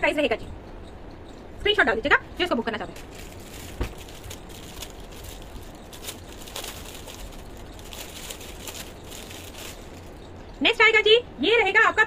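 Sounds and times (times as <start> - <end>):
steady background hum: 0.0 - 12.0
garments rustling: 2.9 - 10.2.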